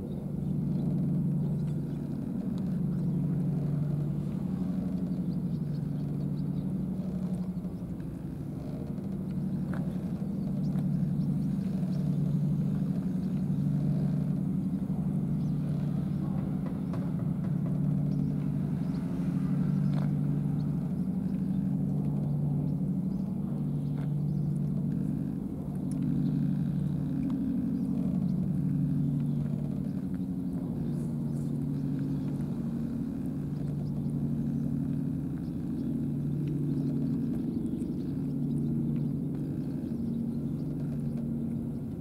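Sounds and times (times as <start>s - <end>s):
engine idling: 0.0s - 42.0s.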